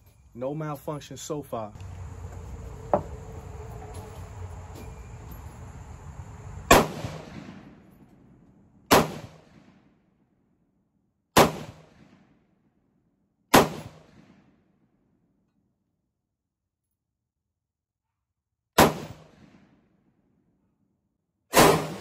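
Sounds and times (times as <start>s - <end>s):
gunshots echoing: 6.6s - 9.9s, 11.4s - 12.3s, 13.5s - 14.5s, 18.8s - 19.6s, 21.5s - 22.0s.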